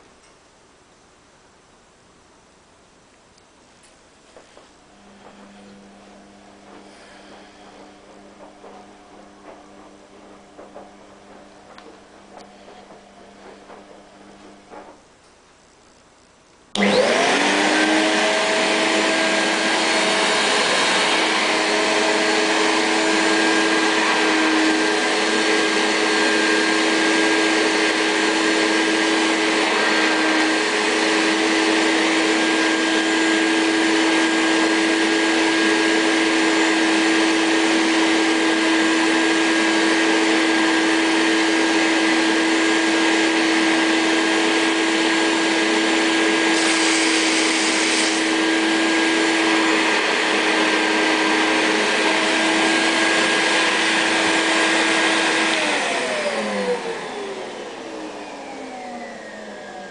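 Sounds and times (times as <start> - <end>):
vacuum cleaner motor running: 4.3 - 15.1, 16.7 - 59.9
sharp hiss of air: 46.6 - 48.2.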